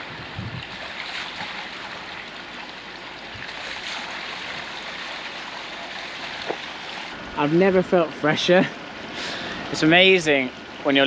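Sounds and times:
water splashing: 0:00.2 - 0:07.2
water running from a pipe: 0:00.2 - 0:07.5.

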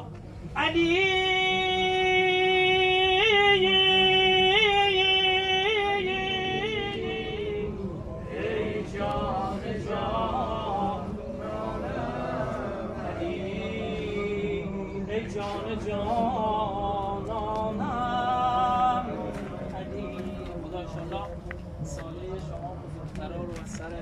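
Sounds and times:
man chanting a lament: 0:00.6 - 0:07.8, 0:13.0 - 0:24.0.

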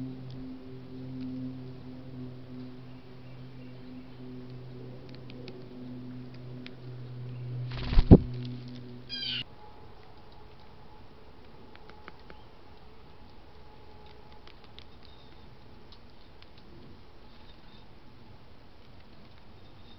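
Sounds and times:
woodpecker wavering call: 0:09.1 - 0:09.4.

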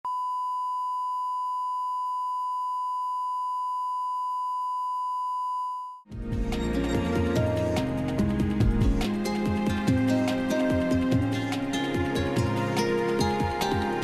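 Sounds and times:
music: 0:06.1 - 0:14.0.

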